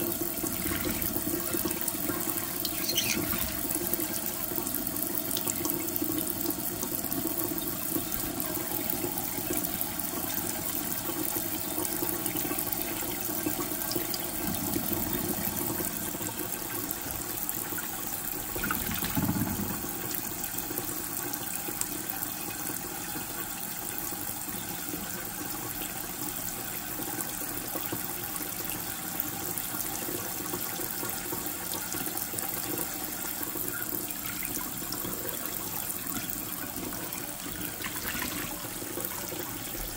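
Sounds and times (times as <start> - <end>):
water spilling into steel sink: 0.0 - 4.8, 37.6 - 39.6
faucet running into a bowl: 0.0 - 39.9.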